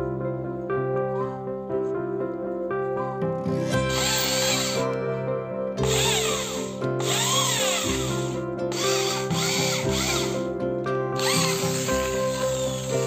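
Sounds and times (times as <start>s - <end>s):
background music: 0.0s - 13.0s
electric drill whining: 3.6s - 5.0s, 5.8s - 10.4s, 11.2s - 13.0s.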